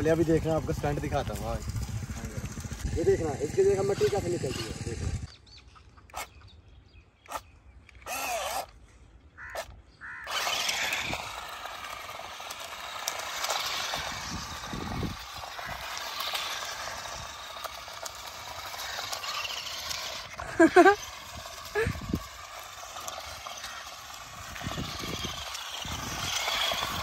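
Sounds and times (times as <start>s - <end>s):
toy car motor whirring: 0.0s - 6.5s, 7.3s - 27.0s
bird calls: 5.2s - 11.1s.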